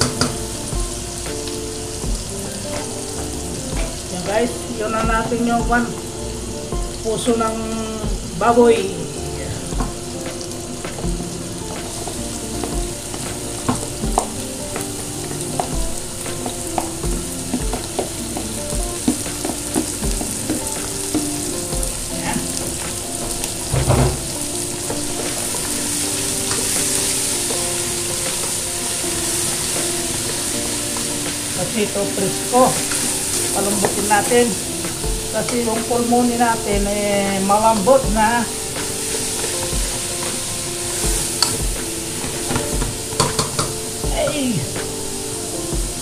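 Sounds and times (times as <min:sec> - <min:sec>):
meat sizzling in hot oil: 0:00.0 - 0:09.0, 0:10.0 - 0:36.7, 0:37.3 - 0:46.0
wooden spoon knocking and scraping: 0:16.3 - 0:21.6.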